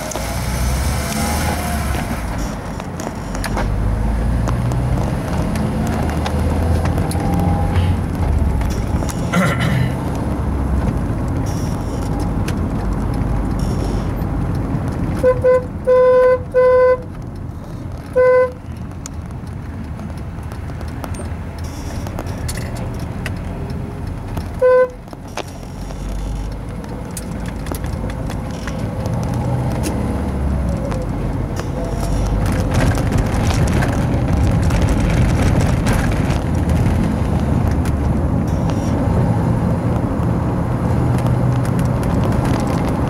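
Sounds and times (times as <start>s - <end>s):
road and engine noise: 0.0s - 43.0s
car horn honking: 15.2s - 17.1s, 18.1s - 18.6s, 24.6s - 25.0s.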